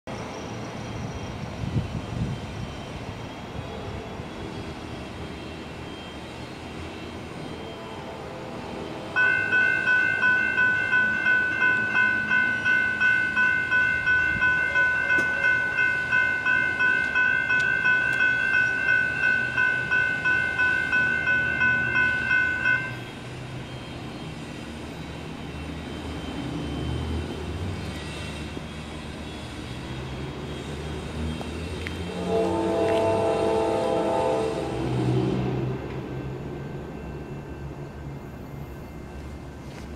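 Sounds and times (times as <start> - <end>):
crossing warning bells ringing: 0.2 - 39.9
distant train horn: 7.4 - 10.8, 31.8 - 36.0.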